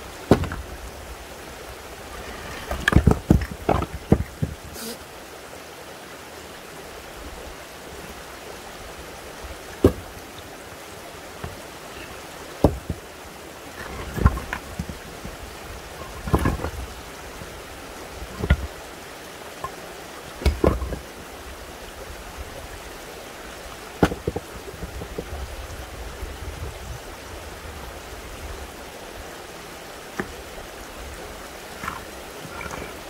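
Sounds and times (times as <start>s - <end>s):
running spring water: 0.0s - 33.0s
stones dropping on stones: 0.2s - 0.8s, 2.2s - 4.7s, 9.8s - 10.2s, 12.6s - 13.0s, 13.8s - 15.4s, 16.0s - 16.9s, 18.3s - 18.7s, 20.4s - 21.1s, 24.0s - 25.3s, 31.7s - 33.0s.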